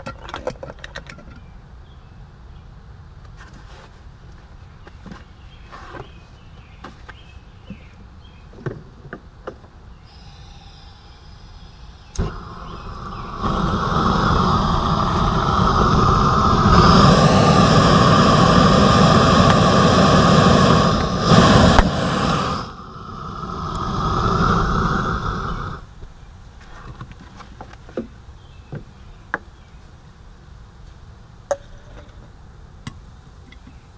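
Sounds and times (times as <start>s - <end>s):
heated can bursting: 10.1s - 25.8s
torch roaring with faint whistle: 10.1s - 25.9s
sharp pop: 21.2s - 22.7s.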